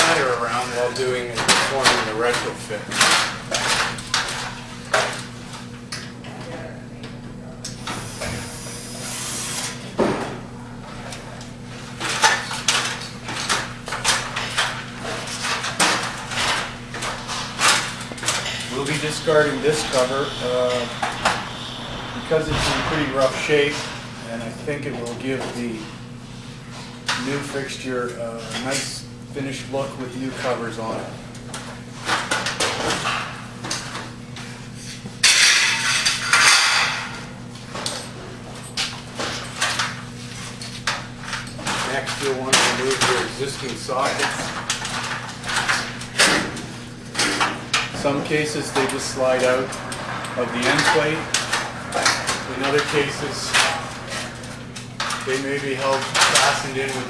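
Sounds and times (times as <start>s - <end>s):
loud metallic clatter: 15.3s - 24.3s, 44.2s - 57.0s
metallic clatters and rattles: 35.2s - 57.0s.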